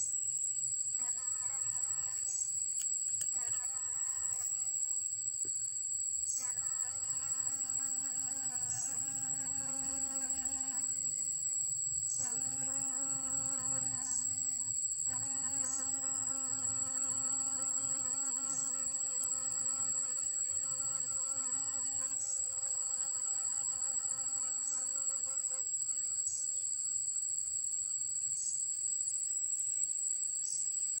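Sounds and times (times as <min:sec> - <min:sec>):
high-pitched insect trill: 0:00.0 - 0:31.0
bee buzzing in flight: 0:06.4 - 0:11.5, 0:12.2 - 0:26.1.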